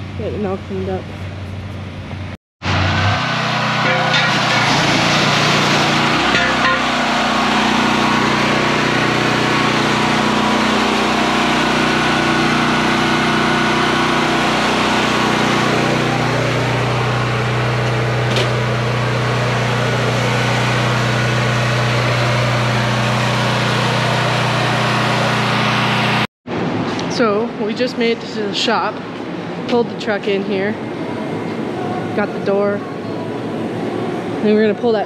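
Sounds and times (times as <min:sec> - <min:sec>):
pressure washer motor hum: 0:02.6 - 0:26.3.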